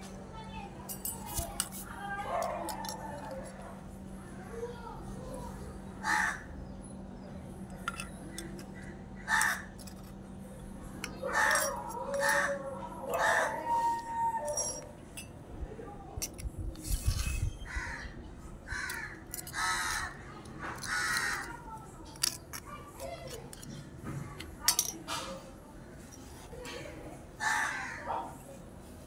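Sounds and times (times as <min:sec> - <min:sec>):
crows cawing: 0:06.0 - 0:06.6, 0:08.8 - 0:09.8, 0:11.2 - 0:14.2, 0:17.7 - 0:21.6, 0:27.4 - 0:28.4
spoon clinking against bowls: 0:07.7 - 0:08.7, 0:11.0 - 0:15.4.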